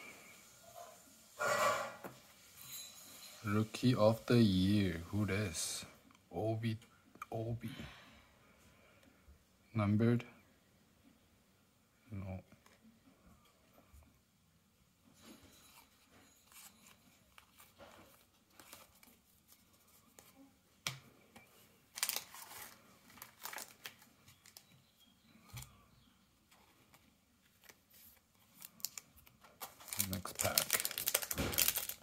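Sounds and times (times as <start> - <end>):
trading cards rustling and clicking: 15.7 - 20.4, 21.9 - 24.7, 26.5 - 32.0.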